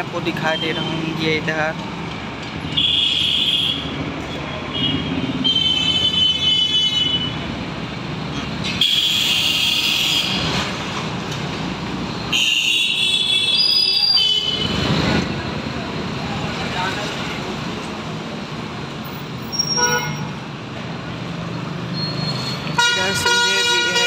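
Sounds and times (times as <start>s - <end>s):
vehicles running past: 3.5s - 24.0s
vehicle horn honks: 22.8s - 24.0s.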